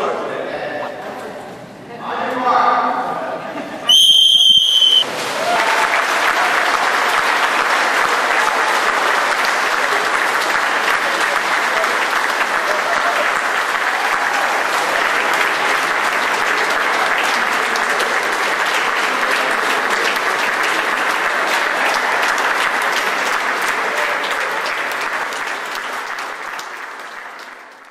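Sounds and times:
audience applauding: 3.9s - 27.9s.

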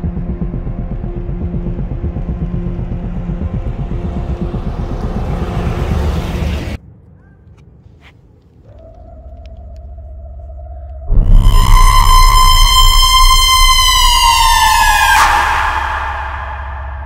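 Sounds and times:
low rumbling drone: 0.0s - 6.8s, 9.1s - 17.0s
vehicle driving past: 3.6s - 6.8s.

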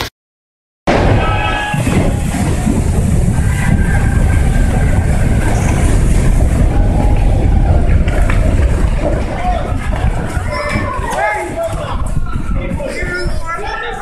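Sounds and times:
snow sliding off roof: 1.2s - 12.3s.

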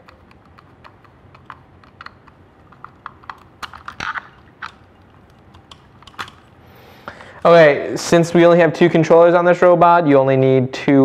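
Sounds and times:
screwdriver clicking and scraping: 0.0s - 6.5s.

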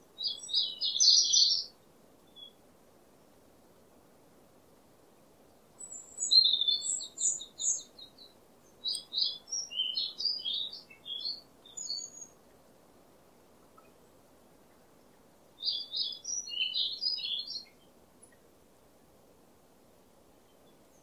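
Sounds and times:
songbird twittering: 0.2s - 1.7s, 5.8s - 12.4s, 15.6s - 18.4s.

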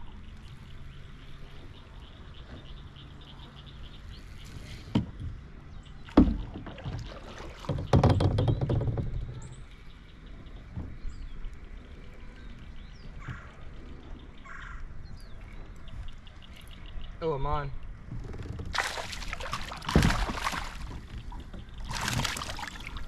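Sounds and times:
paddle splashing in water: 6.0s - 8.6s, 18.3s - 23.0s
paddle knocking on kayak hull: 6.1s - 9.4s, 18.1s - 22.7s.

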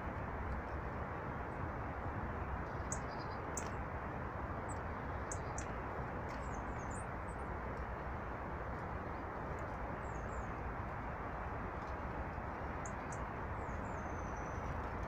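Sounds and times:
small birds chirping: 2.6s - 3.8s, 4.7s - 7.1s.

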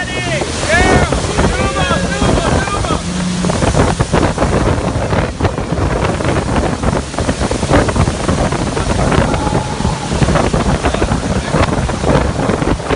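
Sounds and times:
breaking whitewater and spray: 0.0s - 12.9s
wind buffeting microphone: 0.0s - 12.9s.

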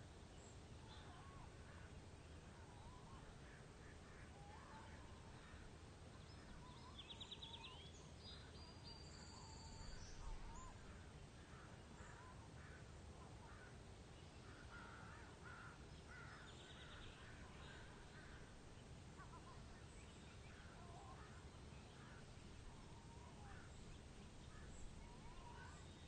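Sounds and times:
low steady hiss: 0.0s - 26.0s
birds calling: 14.4s - 26.0s.

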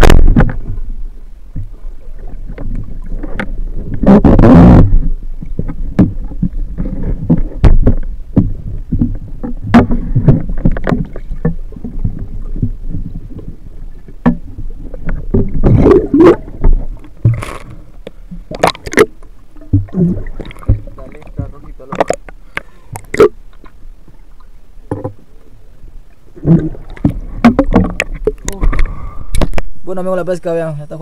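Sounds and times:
underwater knocks and clunks: 0.0s - 25.3s, 26.3s - 29.7s
rushing water: 0.0s - 30.6s
rumble of moving water: 0.0s - 31.0s.

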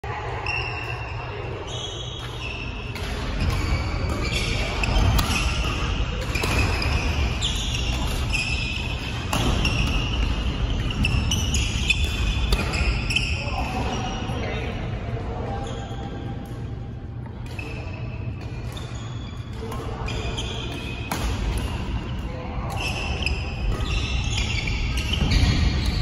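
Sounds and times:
court shoes squeaking: 0.3s - 26.0s
racket striking shuttlecock: 2.2s - 7.0s.

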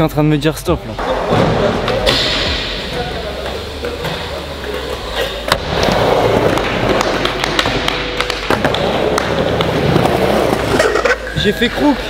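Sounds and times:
skateboard trucks grinding: 1.0s - 12.0s
skateboard wheels rolling on wood: 3.3s - 12.0s.

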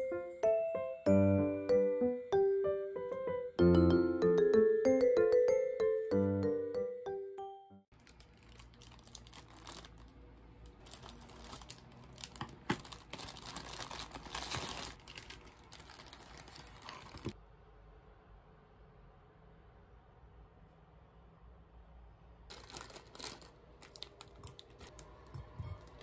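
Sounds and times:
plastic wrapping crinkling: 7.9s - 17.4s, 22.5s - 26.0s.

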